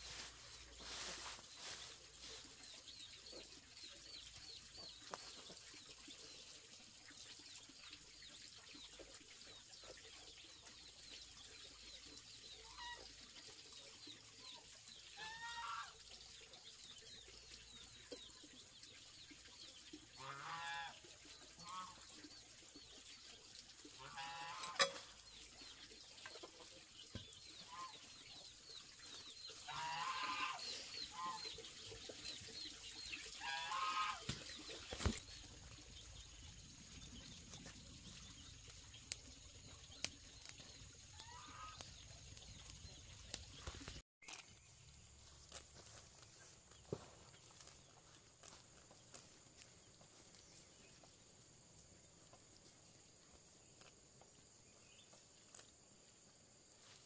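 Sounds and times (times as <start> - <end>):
chickens clucking: 26.2 - 35.7.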